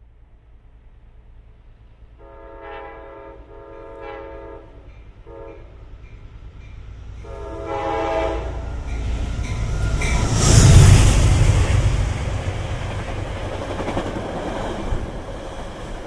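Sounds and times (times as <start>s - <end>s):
train rumble: 0.0s - 16.0s
train horn blasts: 2.2s - 5.9s, 7.2s - 9.0s.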